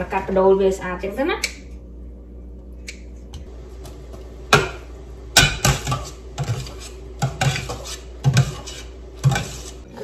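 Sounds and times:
low hum: 0.0s - 7.2s
utensils knocking on steel pot: 4.5s - 9.6s.

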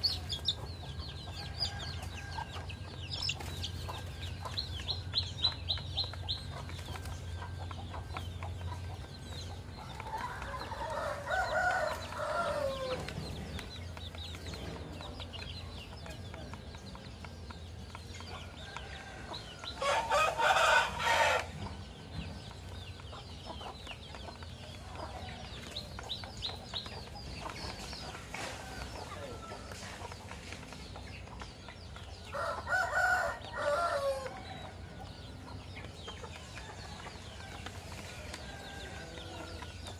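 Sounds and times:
chickens clucking: 0.0s - 39.9s
rooster crowing: 10.0s - 13.0s, 18.9s - 21.5s, 32.3s - 34.4s.

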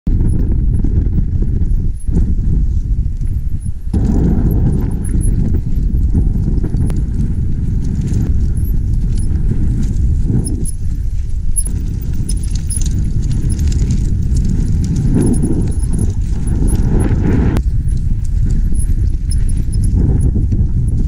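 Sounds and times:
wind rumbling on microphone: 0.0s - 21.0s
bike rattling over rocks: 0.2s - 21.0s.

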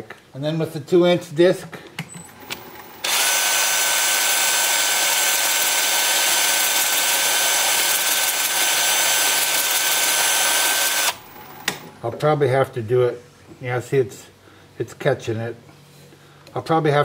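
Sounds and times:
power sanding disc hissing: 2.8s - 11.3s.

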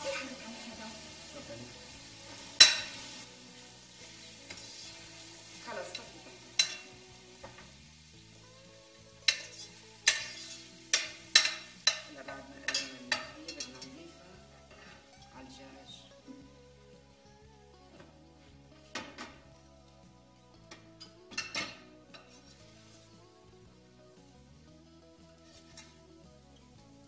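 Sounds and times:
food sizzling: 0.0s - 27.0s
spoon clinking against pot: 2.6s - 3.0s, 6.6s - 6.9s, 9.3s - 12.1s, 12.7s - 13.8s, 21.0s - 22.4s
spoon stirring in a pot: 5.9s - 7.6s, 9.2s - 14.0s.

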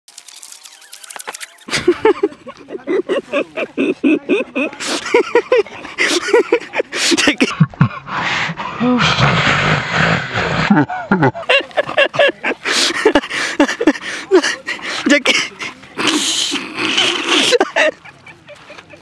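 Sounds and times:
sharp clicks: 0.1s - 1.7s.

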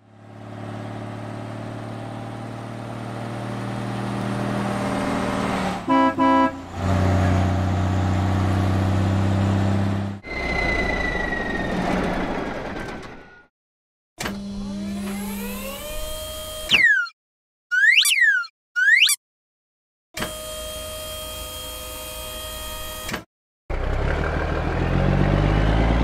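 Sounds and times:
cartoon truck engine running: 0.0s - 13.5s, 23.7s - 26.0s
short horn beeps: 5.9s - 6.6s.

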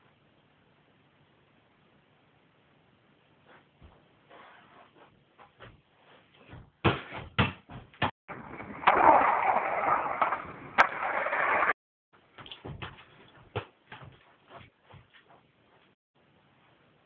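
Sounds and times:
skateboard clack: 8.3s - 11.8s
skateboard wheels rolling on concrete: 8.3s - 11.8s.

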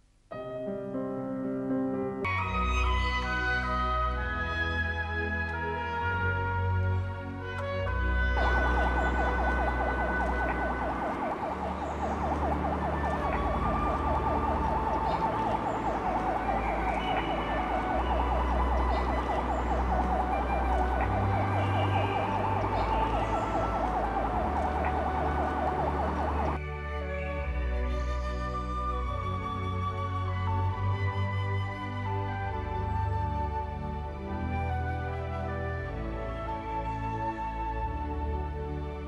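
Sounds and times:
low bass notes: 8.0s - 26.6s.

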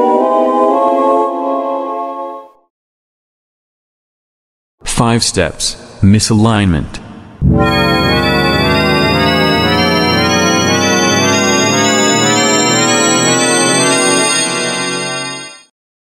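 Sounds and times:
sustained electronic organ chord: 7.4s - 15.7s.

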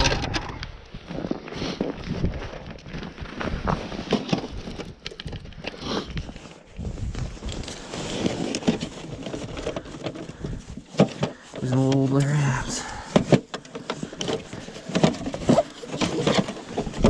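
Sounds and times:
gloved hands rustling: 0.9s - 17.0s.

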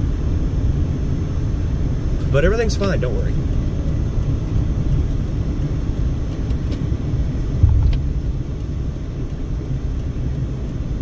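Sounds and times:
car engine and road rumble: 0.0s - 11.0s
thump inside car: 7.6s - 8.1s.

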